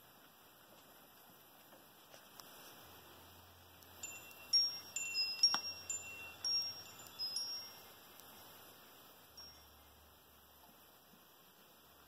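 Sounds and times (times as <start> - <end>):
wind chime ringing: 3.9 - 8.1, 9.3 - 10.1.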